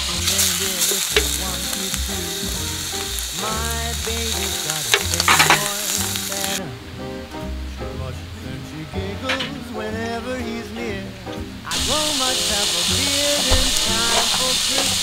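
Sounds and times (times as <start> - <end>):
meat sizzling: 0.0 - 6.6, 11.7 - 15.0
fat popping and spitting: 0.4 - 2.0, 4.8 - 6.3.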